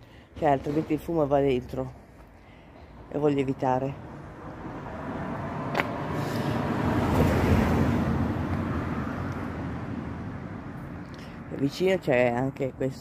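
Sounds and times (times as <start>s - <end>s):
vehicle passing by: 2.9s - 11.6s.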